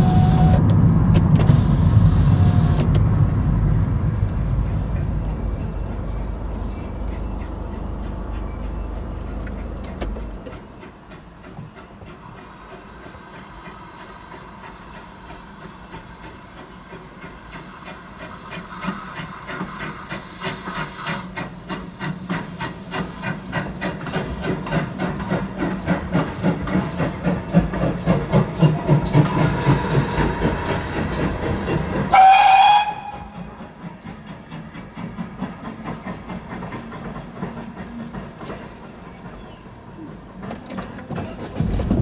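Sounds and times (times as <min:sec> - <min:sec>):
steam whistle blast: 0:00.0 - 0:00.7, 0:01.7 - 0:02.9, 0:32.0 - 0:33.5
steam locomotive exhaust beat: 0:00.0 - 0:42.0.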